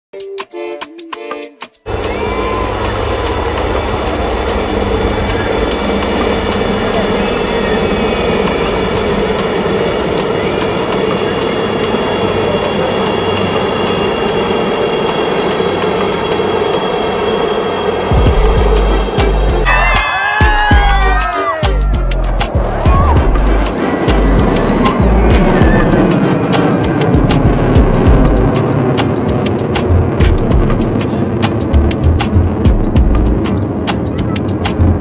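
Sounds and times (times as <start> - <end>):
helicopters flying overhead: 1.9 - 35.0.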